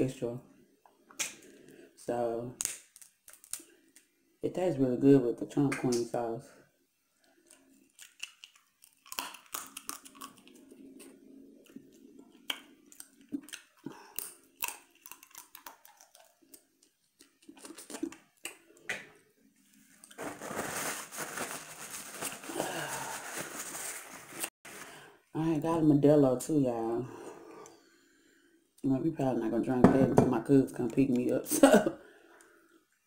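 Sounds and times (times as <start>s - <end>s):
chewing and lip-smacking: 7.4s - 18.9s
paper towel rustling: 19.8s - 24.9s.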